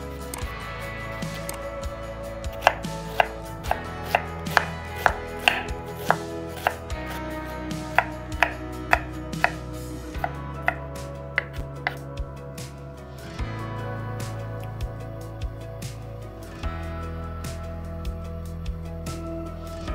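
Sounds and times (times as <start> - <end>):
background music: 0.0 - 19.9
knife chopping on wooden board: 2.6 - 6.9, 7.9 - 9.6, 11.4 - 12.0.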